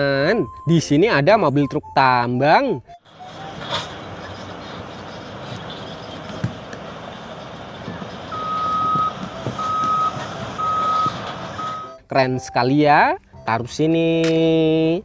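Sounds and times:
backup alarm beeps: 0.2s - 3.6s, 8.3s - 13.8s
dump truck engine rumble: 3.0s - 12.1s.

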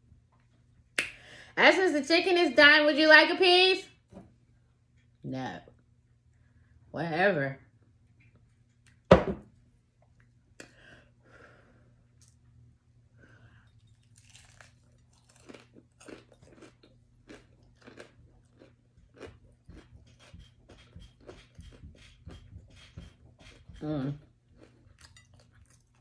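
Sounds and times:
crunching of crisp crust: 13.8s - 21.4s.

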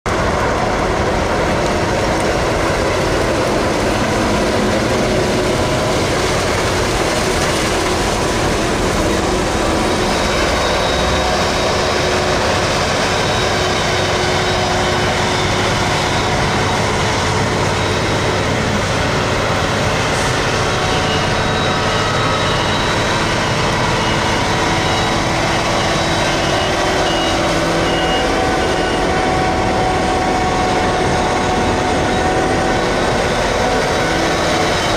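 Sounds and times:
tractors working: 0.1s - 34.9s.

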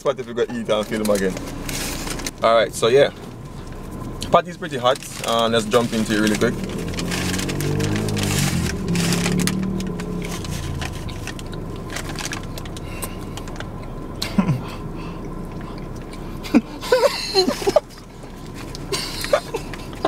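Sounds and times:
low hum inside car: 0.0s - 20.0s
paper bag crinkling: 0.7s - 2.4s, 4.8s - 13.6s
person chewing food: 15.1s - 16.4s
people laughing: 16.5s - 18.0s, 18.9s - 20.0s.

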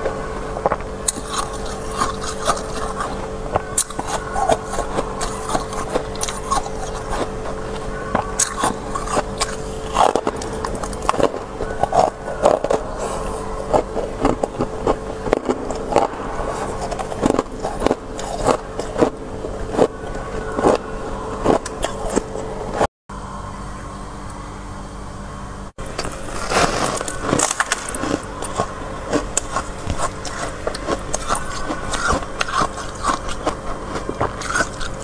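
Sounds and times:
frost crunching between teeth: 0.0s - 22.9s, 25.8s - 35.0s
low hum: 0.0s - 35.0s
frost being scraped: 26.1s - 28.6s.

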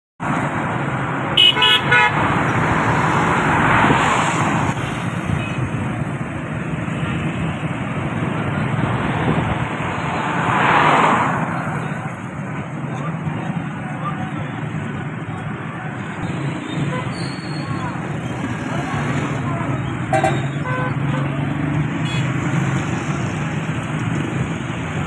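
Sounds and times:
car horn toots: 1.4s - 2.2s, 20.1s - 21.2s.

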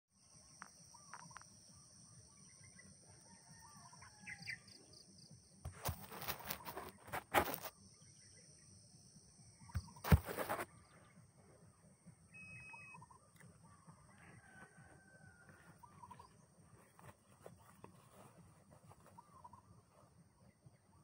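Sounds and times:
faint bird calls: 9.7s - 21.0s.

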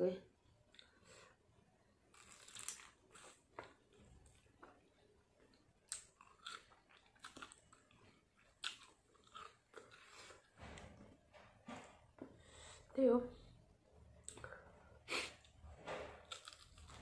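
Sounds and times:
crunchy chicken chewing: 2.1s - 3.8s, 5.9s - 10.5s, 16.2s - 17.0s.

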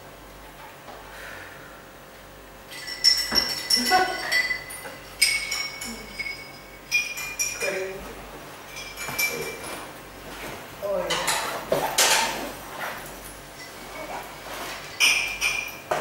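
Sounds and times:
glasses and dishes clinking: 2.7s - 8.0s, 8.6s - 9.9s, 13.6s - 16.0s.

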